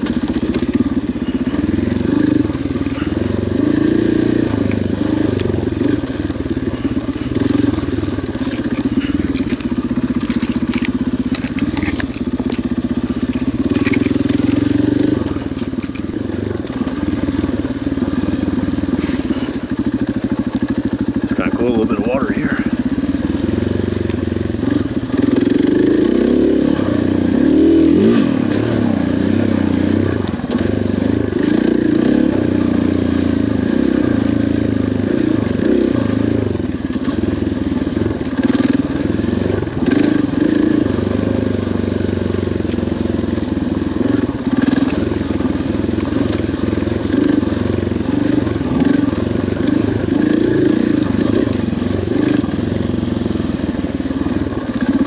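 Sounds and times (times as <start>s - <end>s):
dirt bike engine revving: 0.0s - 55.0s
sharp clicks and rattles: 7.1s - 16.9s.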